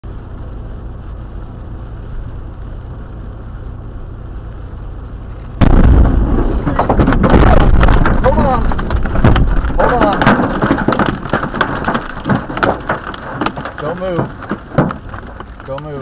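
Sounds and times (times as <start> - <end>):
car cabin road noise: 0.0 - 16.0
rain: 0.0 - 16.0
tree cracking and falling: 5.2 - 16.0
loud thunderclap: 5.6 - 12.7.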